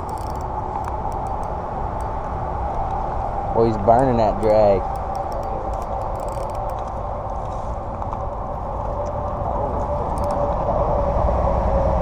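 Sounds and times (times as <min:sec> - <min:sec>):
fishing reel drag buzzing: 0:00.0 - 0:02.2, 0:04.4 - 0:06.8, 0:10.1 - 0:10.4
reel handle cranking: 0:00.0 - 0:02.2, 0:04.4 - 0:06.9, 0:10.1 - 0:10.4.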